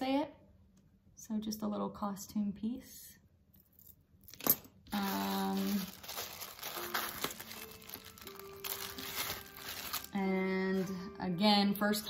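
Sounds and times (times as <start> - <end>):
plastic bag crinkling: 4.3 - 10.9.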